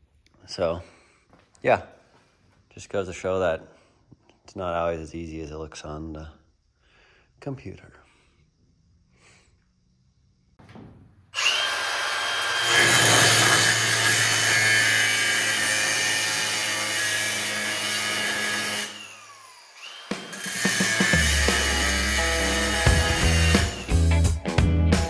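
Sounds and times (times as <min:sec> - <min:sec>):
angle grinder cutting metal: 0:11.4 - 0:24.2.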